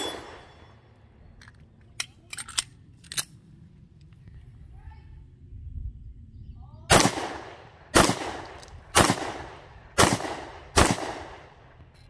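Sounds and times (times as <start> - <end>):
pistol shot echo: 6.9 - 11.6.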